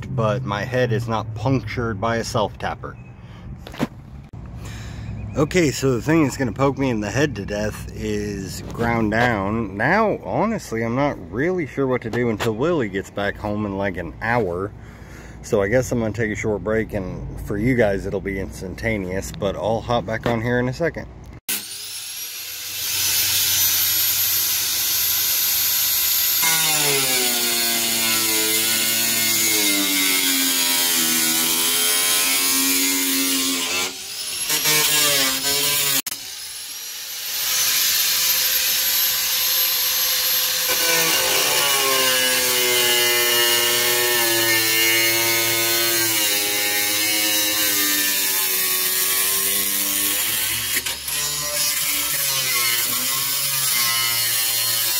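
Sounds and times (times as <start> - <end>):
angle grinder cutting steel: 21.5 - 54.9.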